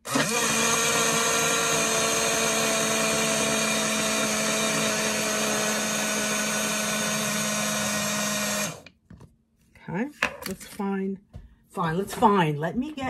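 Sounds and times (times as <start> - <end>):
blender motor whine: 0.0 - 8.9.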